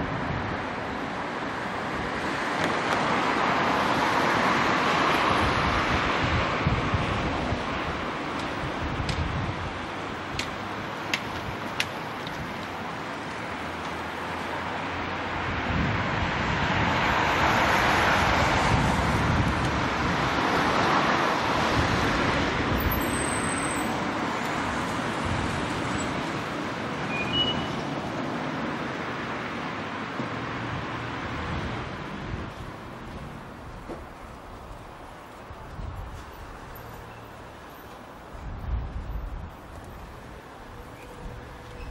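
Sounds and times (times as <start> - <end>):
traffic hum: 0.0 - 41.9
car passing close by: 13.5 - 26.7.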